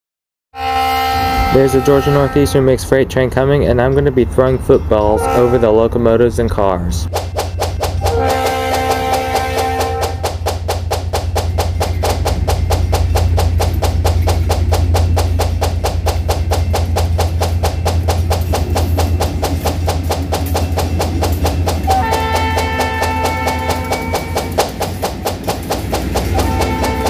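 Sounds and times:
music with percussive beat and bass: 7.1 - 27.0.

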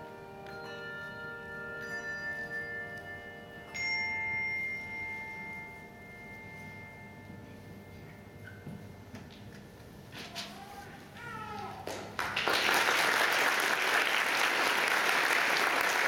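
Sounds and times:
handbell choir ringing chords: 0.0 - 9.1.

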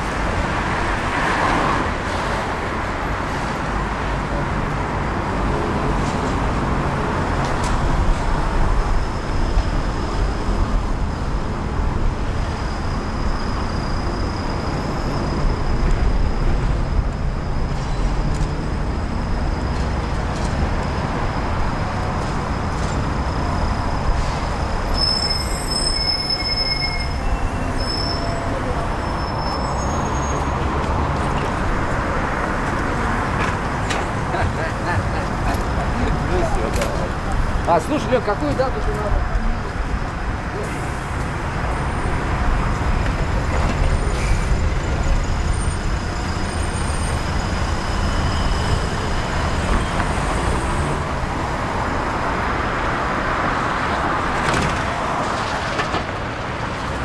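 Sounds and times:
traffic rumble: 0.0 - 57.0
high-pitched squeals: 22.6 - 30.8.

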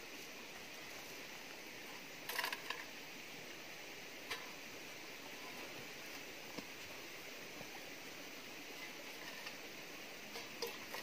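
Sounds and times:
background hiss: 0.0 - 11.0
seeds clinking in metal bowl: 2.2 - 2.9.

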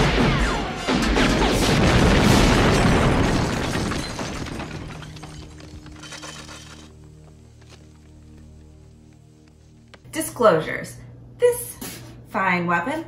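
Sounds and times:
large rumbling explosion: 0.9 - 5.0.

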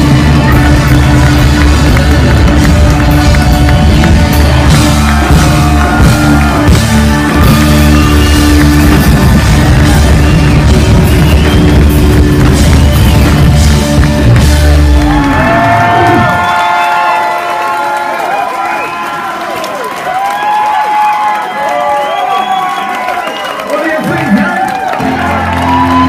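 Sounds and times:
drum kit: 0.0 - 17.3
electric guitar: 0.0 - 17.4
live rock band: 0.0 - 17.4, 25.0 - 26.0.

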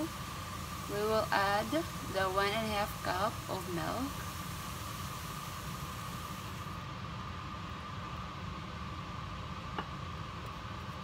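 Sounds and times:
milk hissing in hot skillet: 0.0 - 7.4
steady background drone: 0.0 - 10.6.

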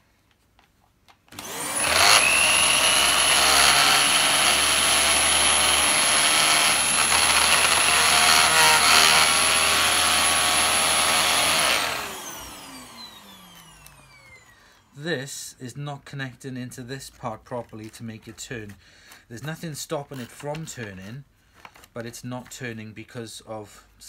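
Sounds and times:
vacuum cleaner motor whine: 1.3 - 14.9.

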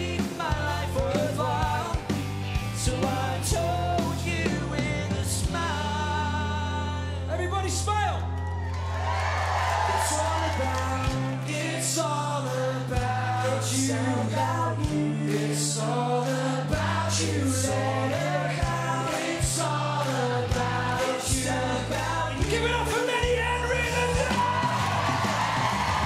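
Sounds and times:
voices singing together: 0.0 - 6.8, 9.6 - 23.2
pop-rock band playing live: 0.0 - 7.3, 10.2 - 26.0
male lead vocal: 0.0 - 7.9, 9.9 - 25.3.

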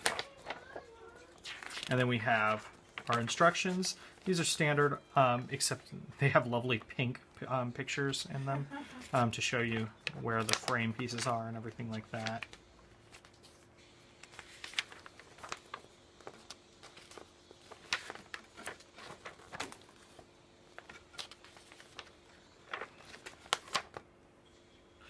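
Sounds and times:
paper pages flipping: 0.0 - 4.6, 8.9 - 24.1.

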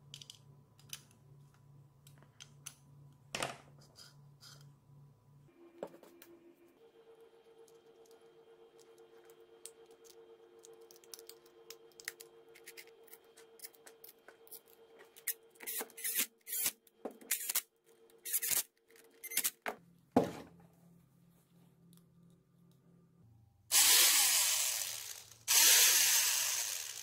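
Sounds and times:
metal parts clicking and scraping: 10.8 - 17.6, 18.2 - 19.6.

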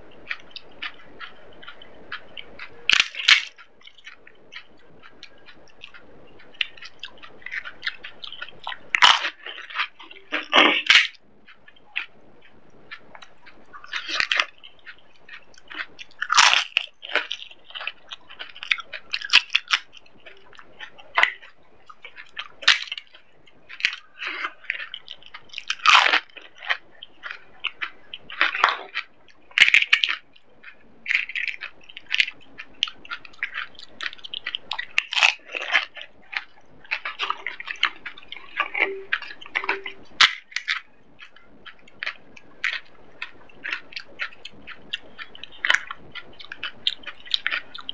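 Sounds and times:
chewing: 0.0 - 47.9
crispy shells cracking and crunching: 0.0 - 47.9.

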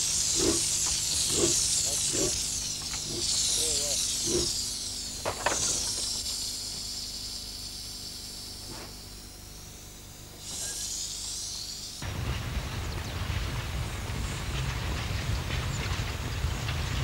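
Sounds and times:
steam locomotive hissing: 0.0 - 9.2, 10.3 - 14.7.

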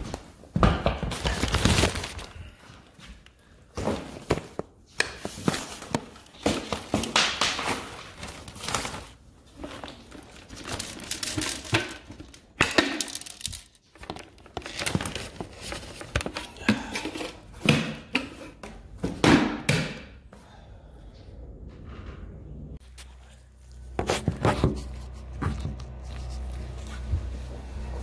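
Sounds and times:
plastic trash bag crinkling: 1.2 - 2.6, 6.2 - 16.5.

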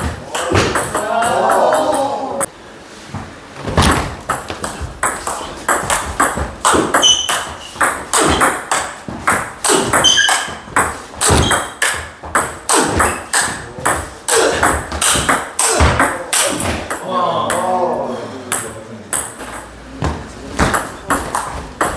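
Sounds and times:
shoe squeaks: 6.6 - 8.6, 9.6 - 12.0, 12.7 - 13.6.

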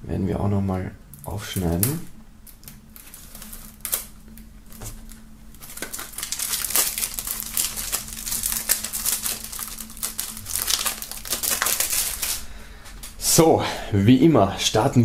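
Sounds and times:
plastic wrap crinkling and tearing: 1.6 - 13.2.

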